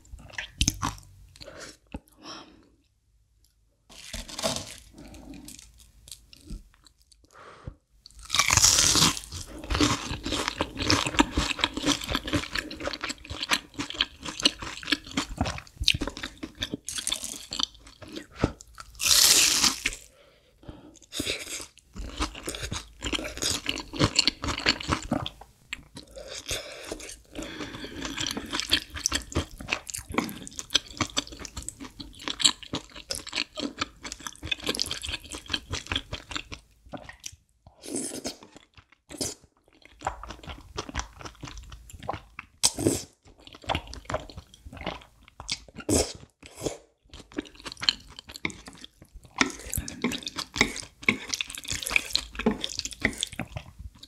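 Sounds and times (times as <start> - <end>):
crunchy chewing: 8.1 - 20.1.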